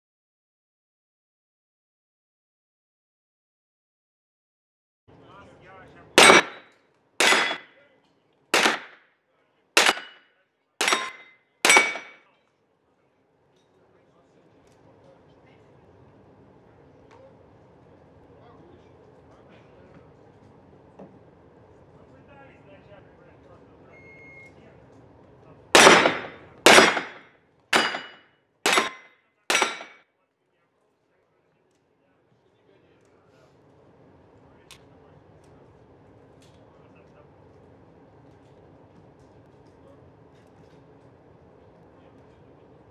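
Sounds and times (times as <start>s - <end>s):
handgun shots echoing: 6.2s - 6.6s, 7.2s - 7.7s, 8.6s - 9.0s, 9.8s - 10.2s, 10.8s - 12.2s, 25.8s - 27.2s, 27.8s - 30.0s
steel targets ringing: 6.2s - 7.8s, 8.6s - 9.0s, 9.8s - 10.2s, 10.8s - 12.2s, 25.8s - 27.2s, 27.8s - 30.0s.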